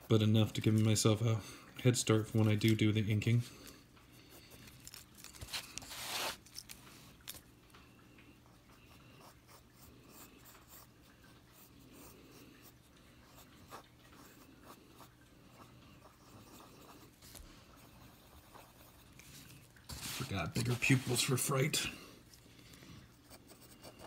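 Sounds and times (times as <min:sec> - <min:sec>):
paper rustling: 0:04.6 - 0:06.8, 0:19.2 - 0:21.5
pencil scratching on paper: 0:08.8 - 0:10.9, 0:11.5 - 0:21.5, 0:23.1 - 0:24.0.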